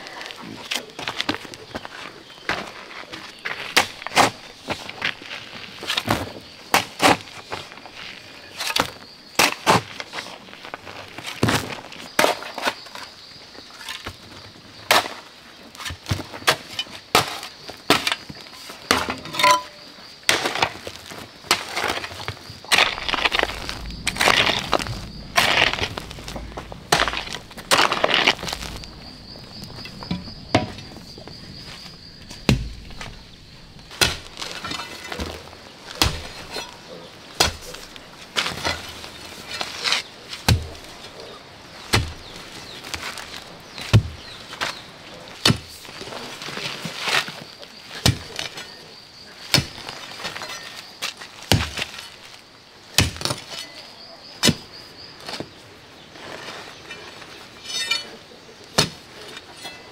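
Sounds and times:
faint insect buzz: 22.6s - 36.9s
hoe and shovel chopping stony soil: 32.3s - 33.2s, 33.9s - 40.9s, 41.8s - 44.2s, 45.4s - 45.8s, 47.9s - 48.6s, 49.5s - 52.1s, 53.0s - 53.8s, 56.9s - 59.9s.

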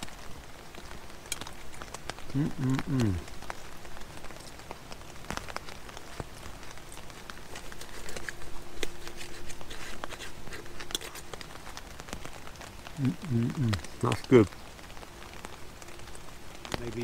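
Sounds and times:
rain on tent fabric: 0.0s - 17.0s.

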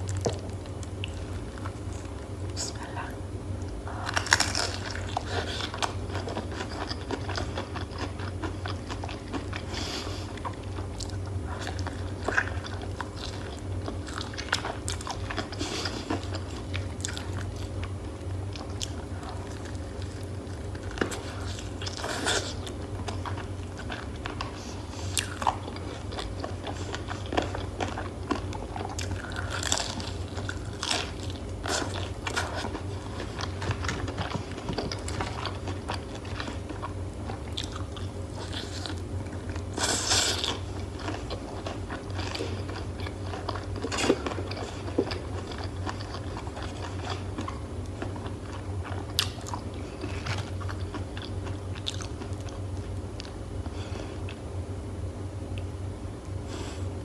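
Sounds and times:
steady low hum: 0.0s - 57.0s
crunching fried chicken: 3.7s - 53.4s.

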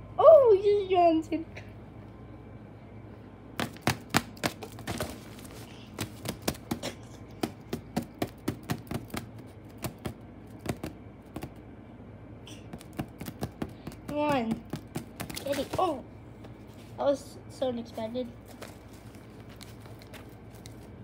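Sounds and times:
taps and rattles on fabric tent: 3.6s - 5.2s, 5.9s - 11.5s, 12.7s - 16.0s.

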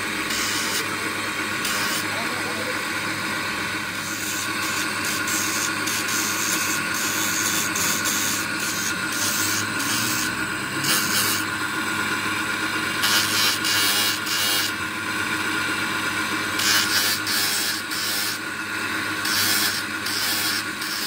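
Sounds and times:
grinding wheel hum: 0.0s - 21.0s
gritty hiss of grinding metal: 1.6s - 2.2s, 4.0s - 11.5s, 16.6s - 18.4s, 19.2s - 21.0s.

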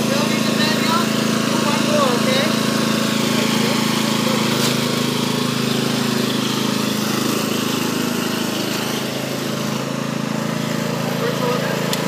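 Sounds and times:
lawn tractor engine running: 0.0s - 12.0s.

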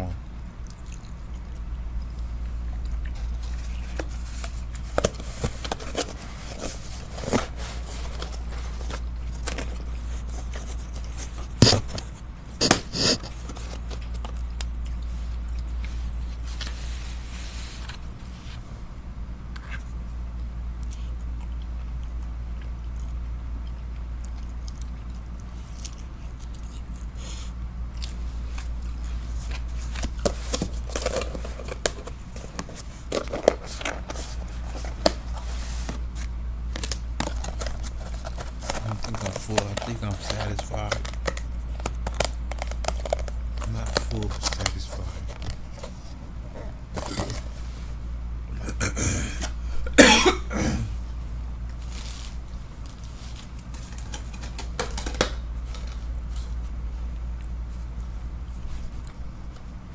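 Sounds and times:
steady low hum: 0.0s - 59.9s
mouth chewing: 0.6s - 4.8s, 19.5s - 27.2s.

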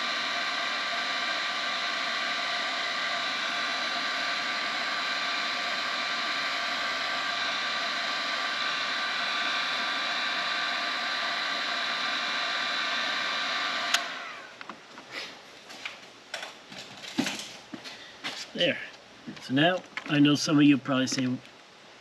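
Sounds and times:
heat gun fan whining: 0.0s - 22.0s
heat gun switch click: 13.8s - 14.2s.

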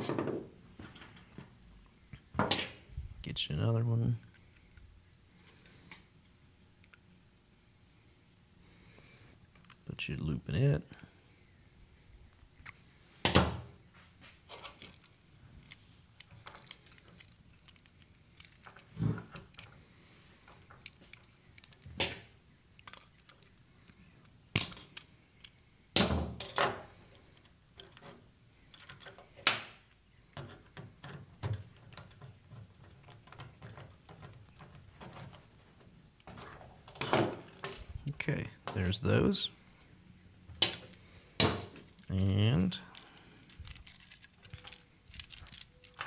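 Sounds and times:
wire strippers clicking: 41.7s - 46.0s.

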